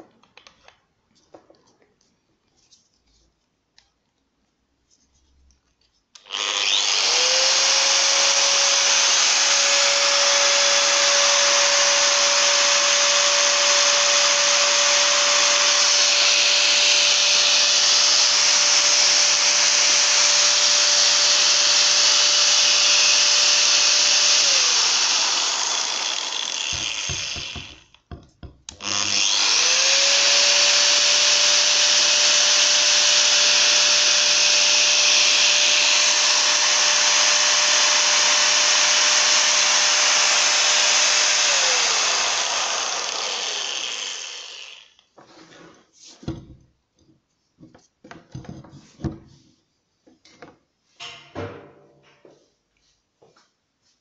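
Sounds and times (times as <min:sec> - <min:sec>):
angle grinder whining: 0:06.2 - 0:28.0, 0:28.7 - 0:45.1.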